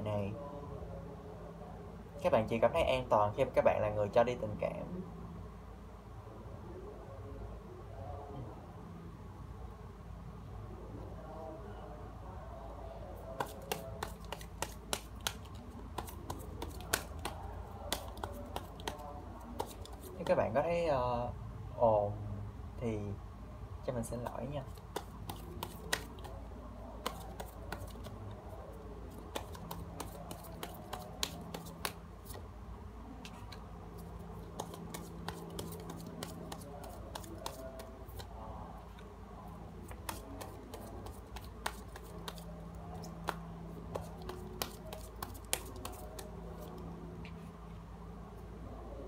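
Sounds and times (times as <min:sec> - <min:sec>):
low background hum: 0:00.0 - 0:49.0
cards shuffling and snapping: 0:13.4 - 0:20.4, 0:24.7 - 0:26.4, 0:27.0 - 0:28.2, 0:29.1 - 0:32.4, 0:33.3 - 0:38.3, 0:39.8 - 0:46.8.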